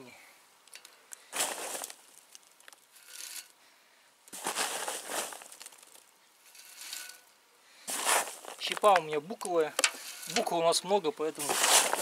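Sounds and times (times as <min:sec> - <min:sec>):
wood chips rattling down pipe: 0:01.4 - 0:03.5, 0:04.4 - 0:07.3, 0:07.9 - 0:10.6.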